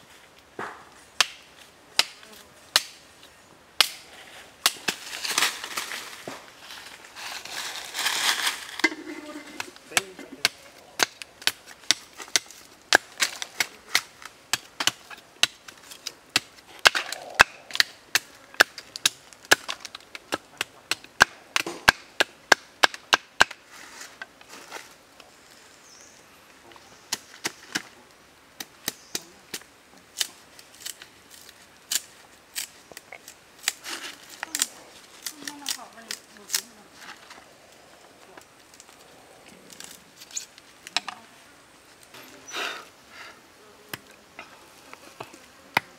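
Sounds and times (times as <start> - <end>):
knife chopping a stick: 0.6 - 3.0, 3.8 - 4.0, 9.6 - 23.6.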